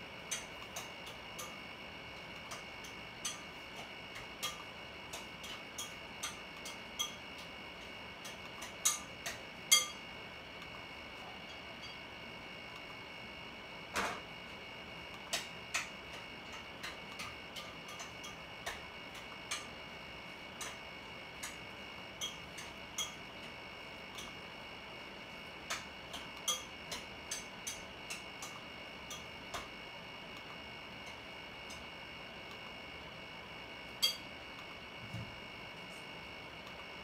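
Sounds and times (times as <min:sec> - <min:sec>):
faint clicks and ticks: 0:02.2 - 0:09.9, 0:20.6 - 0:23.5.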